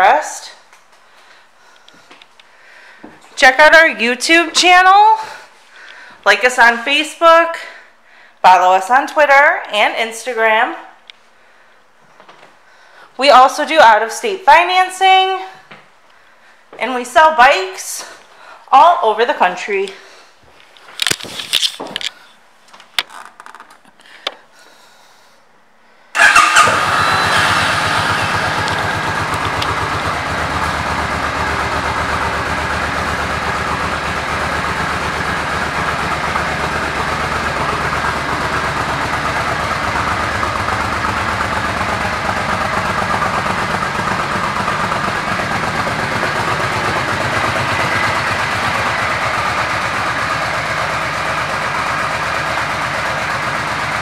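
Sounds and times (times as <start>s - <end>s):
motorcycle engine starting and idling: 26.2s - 54.0s.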